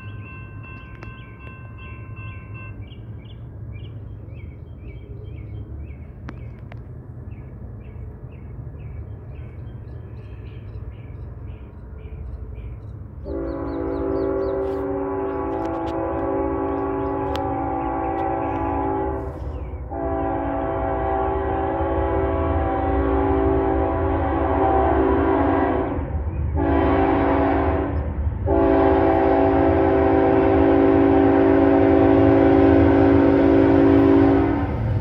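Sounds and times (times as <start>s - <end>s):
freight train rumble: 0.0s - 35.0s
locomotive air horn: 13.2s - 34.9s.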